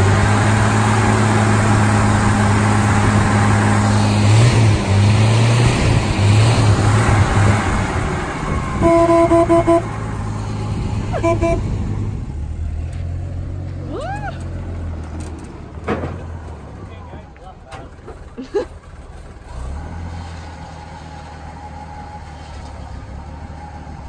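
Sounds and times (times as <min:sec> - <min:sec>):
horn honk: 0:08.8 - 0:10.0, 0:11.1 - 0:11.8.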